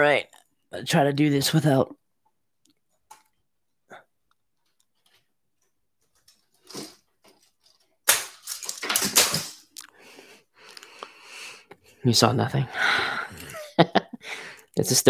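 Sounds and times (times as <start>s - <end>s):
rustling and clattering: 4.6s - 9.7s.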